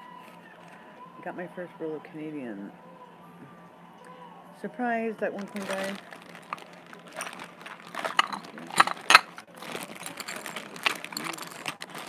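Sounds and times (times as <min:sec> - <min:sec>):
small hard objects clicking: 0:05.9 - 0:12.0.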